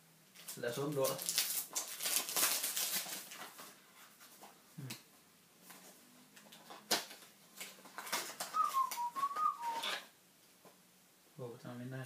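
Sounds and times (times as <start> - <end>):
plastic wrapping rustling: 0.3 - 4.6, 5.6 - 10.1
wavering whistle-like tone: 8.6 - 10.0.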